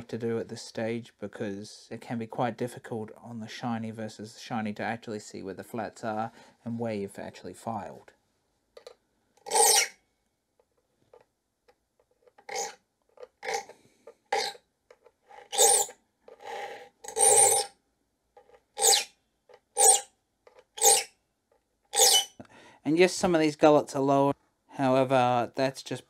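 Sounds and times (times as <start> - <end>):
file rasping on saw teeth: 9.5 - 9.9, 15.4 - 17.7, 18.8 - 19.1, 19.8 - 20.1, 20.8 - 21.1, 22.0 - 22.3.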